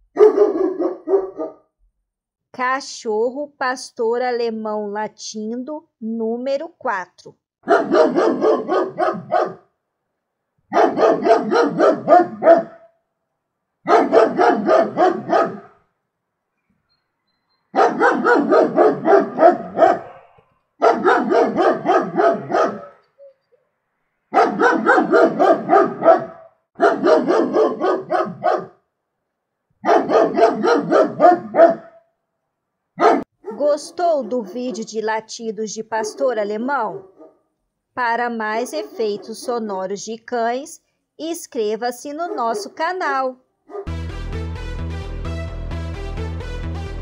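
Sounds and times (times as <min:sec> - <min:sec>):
dog barking: 0:00.1 - 0:01.7, 0:07.6 - 0:09.7, 0:10.7 - 0:13.0, 0:13.9 - 0:15.8, 0:17.7 - 0:23.4, 0:24.3 - 0:28.8, 0:29.8 - 0:32.2, 0:33.0 - 0:35.0, 0:36.0 - 0:36.3, 0:36.9 - 0:37.4, 0:38.6 - 0:39.6, 0:42.2 - 0:42.9, 0:43.7 - 0:43.9.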